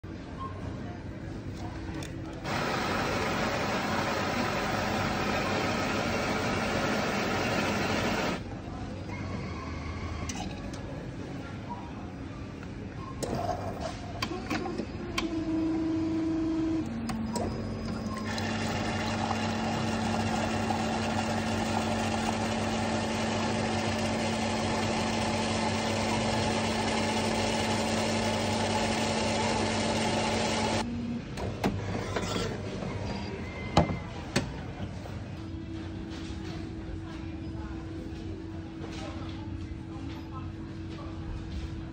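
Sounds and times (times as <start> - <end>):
coffee machine motor hum: 2.4 - 8.4, 14.5 - 30.9
coffee machine pump hum: 2.4 - 8.4, 14.5 - 30.9
coffee hissing and spraying: 2.5 - 8.4.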